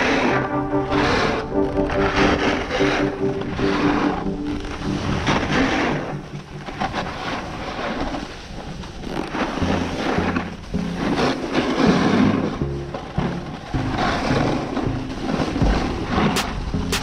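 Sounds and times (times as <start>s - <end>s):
faint background music: 0.0s - 17.0s
snowboard scraping icy snow: 0.0s - 17.0s.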